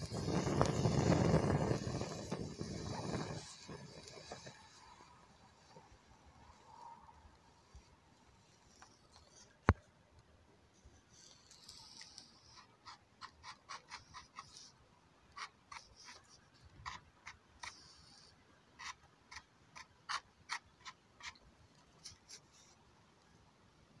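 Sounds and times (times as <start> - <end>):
powder scratching on stone: 0.0 - 5.0, 11.2 - 14.8, 15.4 - 21.4.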